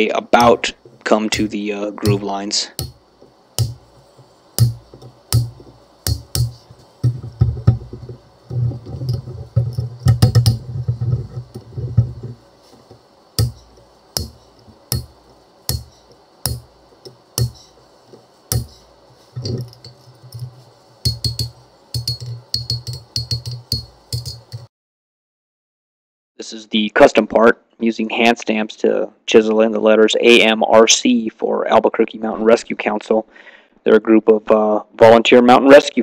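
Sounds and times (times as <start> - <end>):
hammer striking chisel on steel: 1.3 - 3.0, 3.6 - 8.2, 13.4 - 17.8, 18.5 - 24.7.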